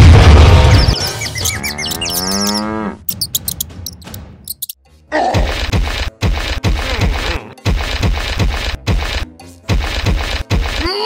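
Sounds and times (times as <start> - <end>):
music with thumping beat: 5.4 - 10.8.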